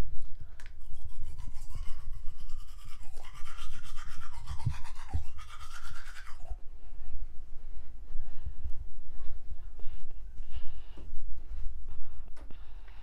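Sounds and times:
toothbrush scrubbing teeth: 0:00.6 - 0:06.6.

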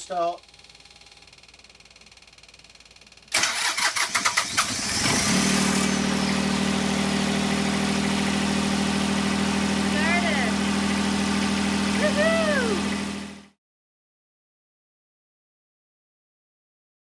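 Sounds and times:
diesel generator cranking and running: 0:00.0 - 0:13.6.

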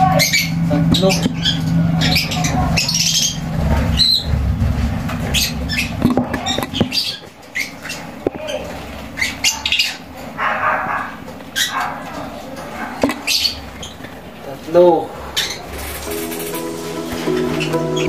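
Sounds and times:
lovebirds chirping: 0:00.0 - 0:04.4, 0:05.2 - 0:14.4, 0:15.2 - 0:18.0
low hum: 0:00.0 - 0:07.1.

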